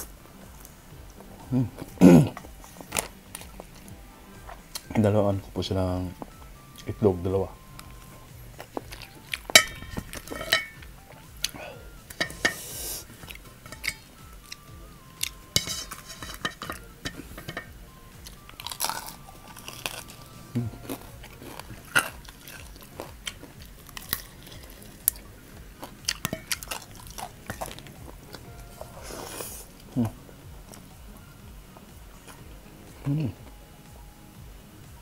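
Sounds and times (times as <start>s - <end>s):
chewing crispy fried chicken: 0.6s - 4.9s, 7.8s - 17.6s, 18.2s - 31.1s
chopsticks clicking on steel plate: 15.2s - 17.7s, 26.2s - 26.8s.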